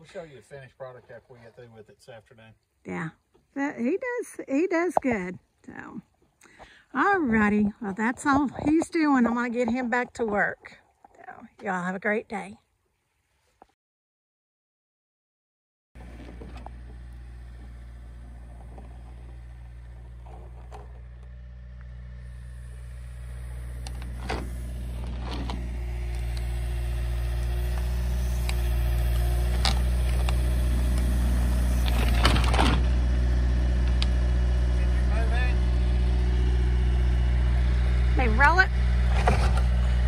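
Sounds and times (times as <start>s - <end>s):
diesel engine running: 16.0s - 40.0s.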